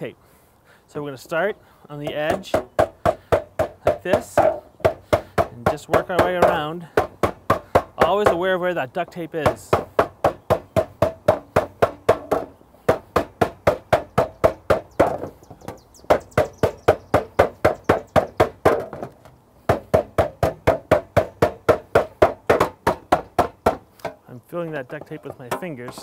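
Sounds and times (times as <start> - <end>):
hammer striking copper sheet: 25.1 - 26.0.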